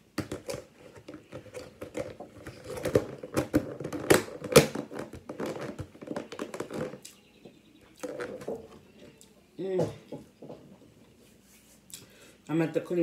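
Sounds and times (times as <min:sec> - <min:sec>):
plastic lid clicks and crinkles: 0:00.2 - 0:07.1.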